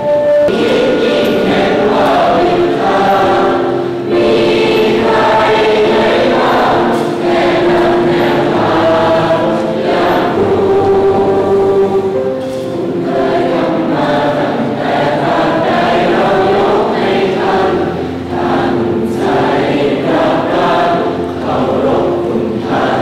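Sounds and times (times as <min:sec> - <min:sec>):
group of voices singing slowly: 0:00.0 - 0:23.0.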